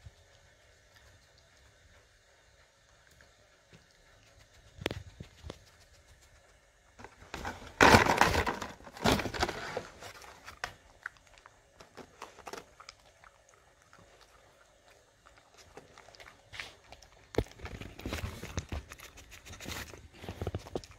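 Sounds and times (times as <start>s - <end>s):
cardboard crackling and crumpling: 7.0s - 10.9s, 17.4s - 20.9s
small clicks and rustles: 15.1s - 20.9s.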